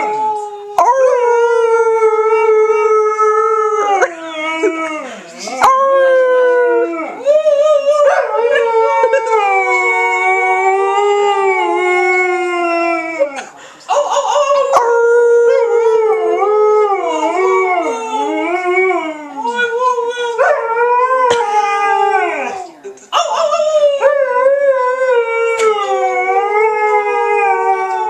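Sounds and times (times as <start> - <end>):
dog howling: 0.0 - 19.6, 20.4 - 22.7, 23.8 - 28.0
people howling: 0.0 - 28.0.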